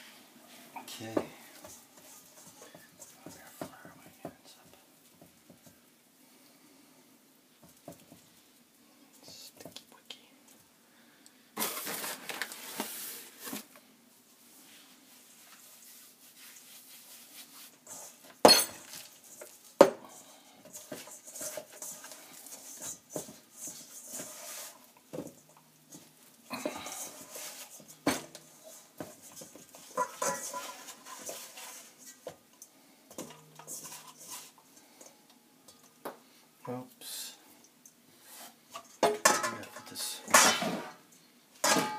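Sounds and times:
bowls and utensils clattering: 17.9 - 32.3, 33.1 - 36.0, 38.7 - 41.9.

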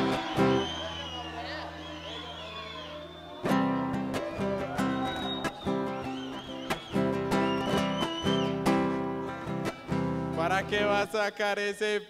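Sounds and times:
acoustic guitar strumming chords: 0.0 - 1.0, 3.4 - 11.1.

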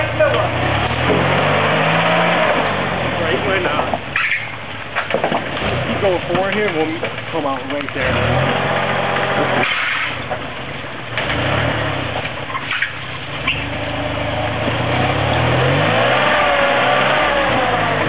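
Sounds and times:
engine revving up and down: 0.0 - 4.0, 8.0 - 10.2, 11.2 - 12.3, 13.5 - 18.0.

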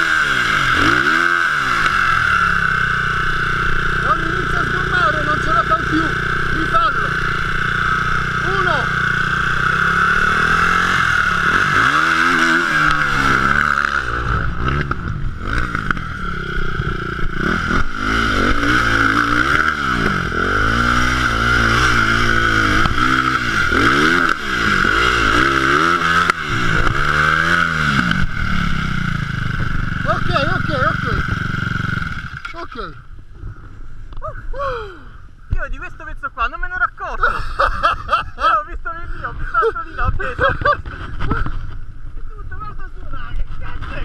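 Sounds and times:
motorcycle engine revving in blips: 0.0 - 33.3
motorcycle engine idling: 0.0 - 36.0.

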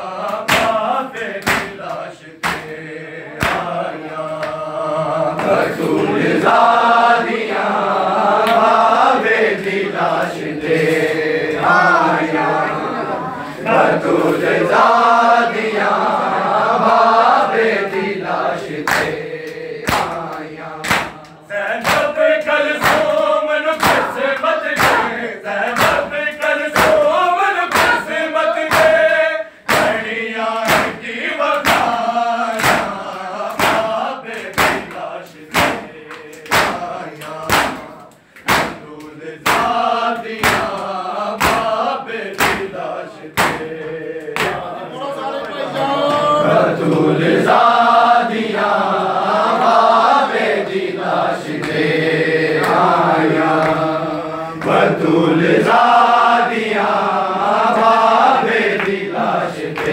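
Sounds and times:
men chanting together: 0.0 - 59.9
hands striking chests: 33.6 - 39.8.

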